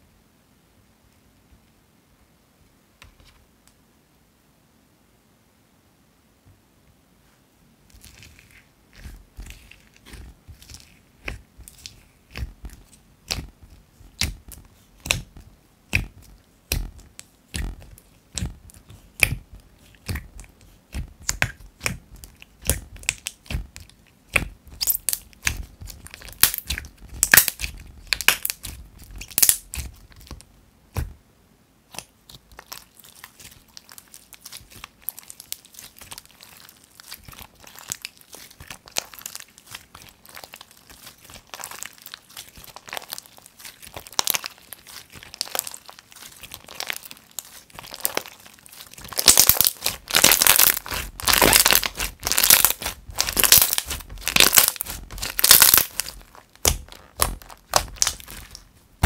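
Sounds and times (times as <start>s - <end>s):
slime fine crackling: 7.9s - 31.1s, 31.9s - 59.0s
slime crunchy clicks and pops: 24.3s - 30.3s, 46.7s - 58.6s.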